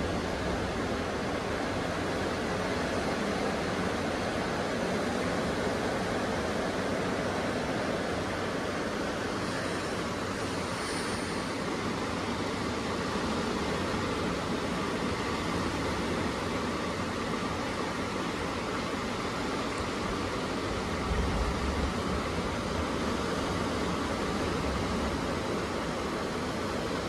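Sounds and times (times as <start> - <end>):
ocean surf: 0.0 - 27.0.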